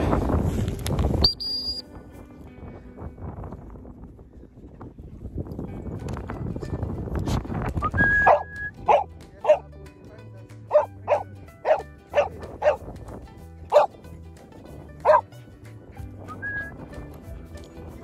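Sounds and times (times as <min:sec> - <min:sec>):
background music: 0:05.7 - 0:18.0
dog barking: 0:08.2 - 0:09.7, 0:10.7 - 0:12.8, 0:13.7 - 0:13.9, 0:15.0 - 0:15.2.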